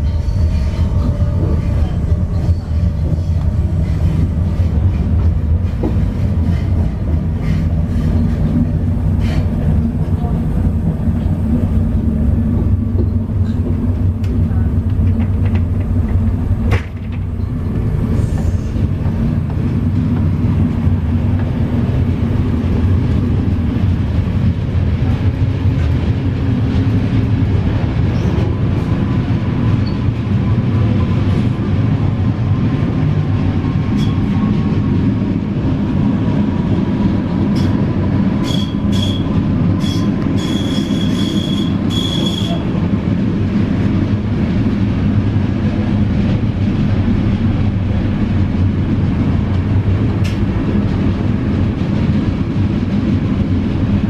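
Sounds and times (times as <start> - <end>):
train wheels rumbling on rail: 0.0 - 54.0
high-pitched wheel squeals: 38.4 - 42.6.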